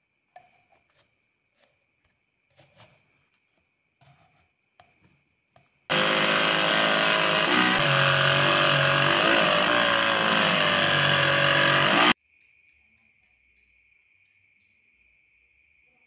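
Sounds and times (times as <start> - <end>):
mini grinder cutting plastic: 5.9 - 12.2.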